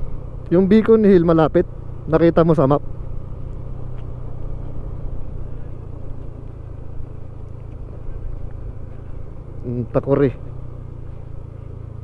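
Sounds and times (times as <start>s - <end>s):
motorcycle engine running: 0.0s - 12.0s
wind and road noise: 0.0s - 12.0s.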